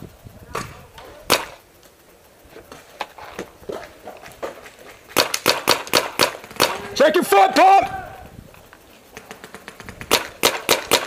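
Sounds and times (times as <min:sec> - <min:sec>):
paintball markers firing: 0:00.6 - 0:01.6, 0:04.4 - 0:06.9, 0:09.1 - 0:11.0.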